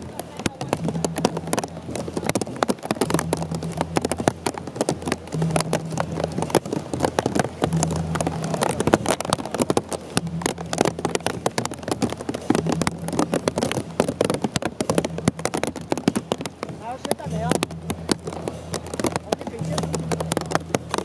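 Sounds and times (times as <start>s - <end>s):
heavy rain on an umbrella: 0.0s - 21.0s
short low hum: 3.0s - 14.2s.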